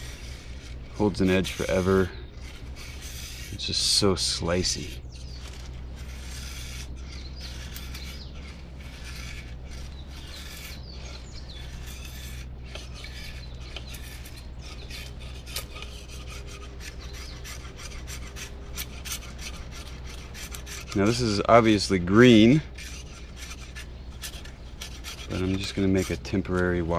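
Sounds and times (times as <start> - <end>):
knife scraping bark off stick: 0.0 - 26.9.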